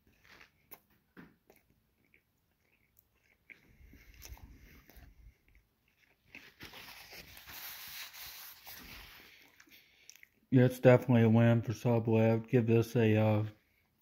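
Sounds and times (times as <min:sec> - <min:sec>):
person chewing: 0:00.0 - 0:10.5.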